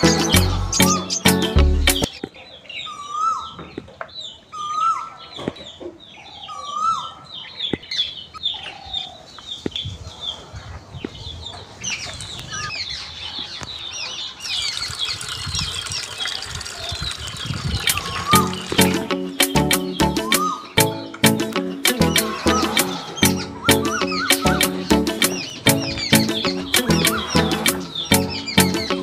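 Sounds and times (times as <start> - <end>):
bird call with rising hook: 14.4 - 21.2, 21.8 - 29.0
quick high bird chirps: 16.9 - 29.0.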